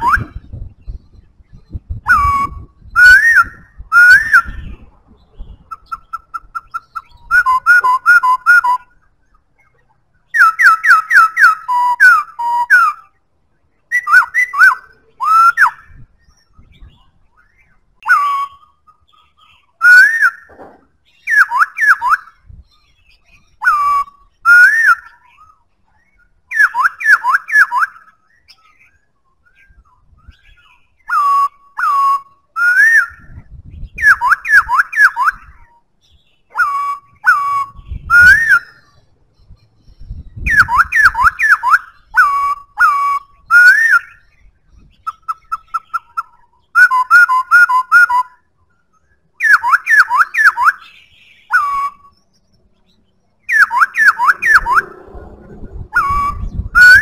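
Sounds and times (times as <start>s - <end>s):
bird pips: 0.0s - 13.2s
bird whistling song: 0.0s - 57.0s.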